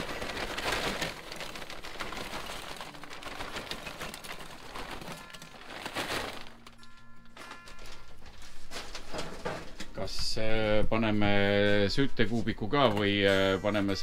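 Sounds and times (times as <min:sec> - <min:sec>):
charcoal clinking and rattling: 0:00.0 - 0:10.0
short ringing tone: 0:06.6 - 0:09.0.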